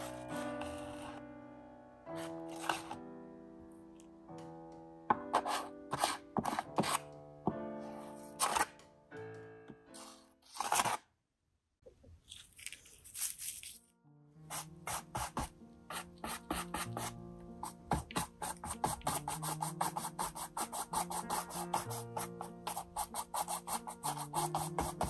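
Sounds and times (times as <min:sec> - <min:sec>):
paintbrush scrubbing canvas: 0:00.0 - 0:01.2, 0:05.3 - 0:07.0, 0:14.5 - 0:25.0
soft background music: 0:00.0 - 0:11.0, 0:13.0 - 0:25.0
plastic card scraping paint: 0:02.2 - 0:03.0, 0:08.4 - 0:08.7, 0:10.0 - 0:11.0, 0:12.3 - 0:13.8, 0:14.5 - 0:25.0.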